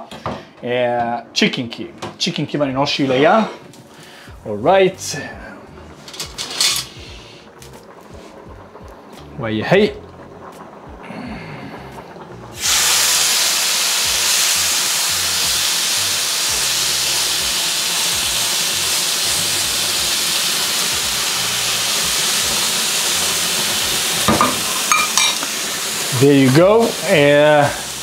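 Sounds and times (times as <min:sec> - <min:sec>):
chicken sizzling on a grill pan: 0:06.2 - 0:08.9, 0:11.8 - 0:28.0.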